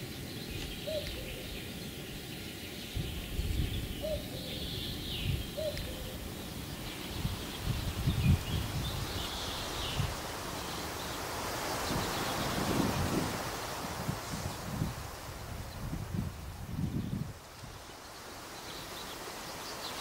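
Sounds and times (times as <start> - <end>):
wind rumbling on microphone: 0.0 - 18.0
faint songbirds calling: 0.0 - 20.0.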